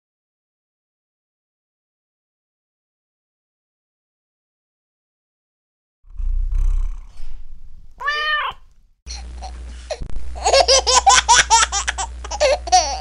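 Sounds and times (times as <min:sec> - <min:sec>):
high-pitched laughter: 0:10.4 - 0:13.0.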